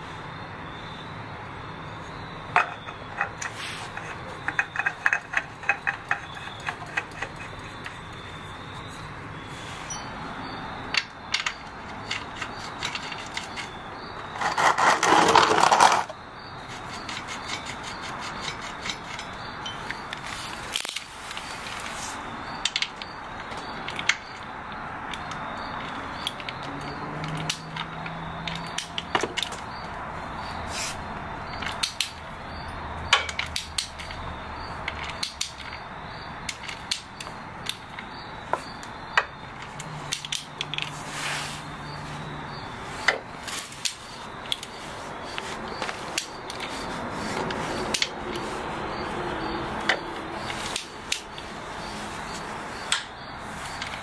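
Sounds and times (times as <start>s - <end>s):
ratchet and wrench on metal: 2.6s - 8.2s, 11.0s - 20.0s.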